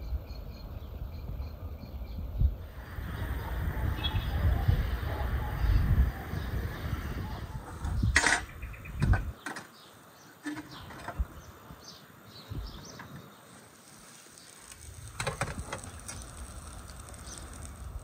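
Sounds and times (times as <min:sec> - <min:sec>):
wind buffeting microphone: 0:00.0 - 0:09.4, 0:10.7 - 0:13.0, 0:14.7 - 0:18.0
faint bird chirps: 0:00.0 - 0:13.6.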